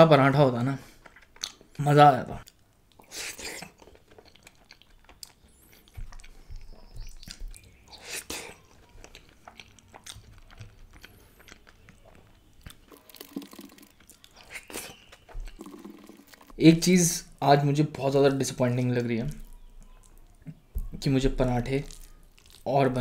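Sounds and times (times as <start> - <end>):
close chewing: 0.8 - 1.8, 2.4 - 16.6, 18.8 - 22.8
wet mouth clicks and smacks: 2.4 - 12.0, 12.6 - 16.6.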